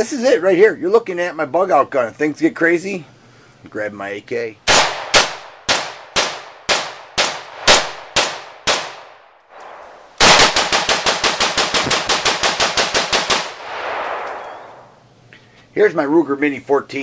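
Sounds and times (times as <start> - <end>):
rapid rifle fire: 4.7 - 9.2, 9.8 - 14.4
rifle single shots: 4.7 - 14.9.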